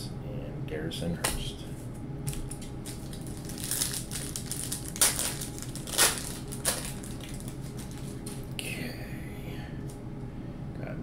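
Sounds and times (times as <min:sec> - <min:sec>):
wrapper tearing and crinkling: 0:02.3 - 0:08.5.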